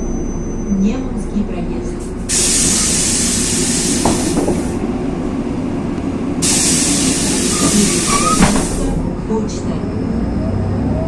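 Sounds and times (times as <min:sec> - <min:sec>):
bus engine rumbling: 0:00.0 - 0:11.0
compressed air hissing: 0:02.0 - 0:04.8, 0:06.4 - 0:09.0.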